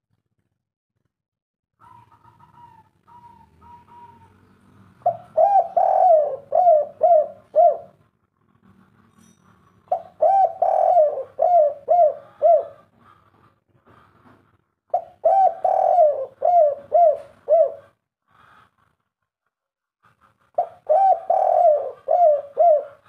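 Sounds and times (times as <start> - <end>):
dove cooing: 1.8 - 8.0, 9.9 - 13.2, 14.9 - 18.0, 20.6 - 23.0.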